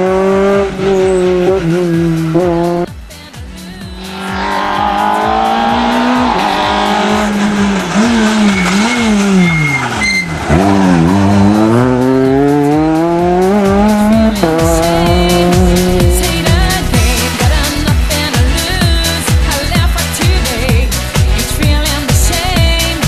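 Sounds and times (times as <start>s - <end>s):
rally car engine revving: 0.0s - 23.0s
tyre squeal: 4.3s - 11.2s.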